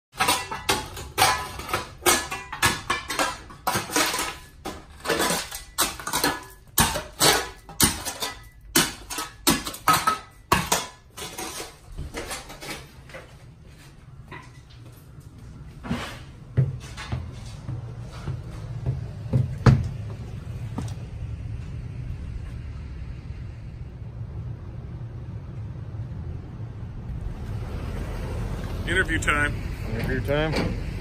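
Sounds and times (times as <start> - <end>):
shovel scraping dirt and gravel: 0.2 - 13.0.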